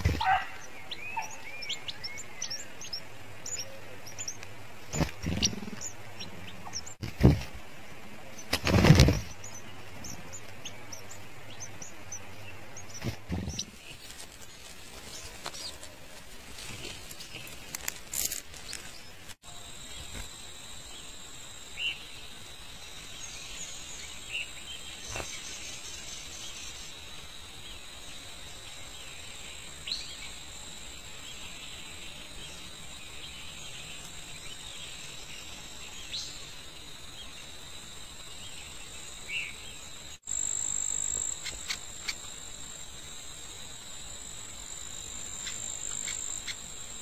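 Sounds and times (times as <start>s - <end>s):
bird chirps: 0.0s - 7.5s
insect trilling: 44.7s - 47.0s.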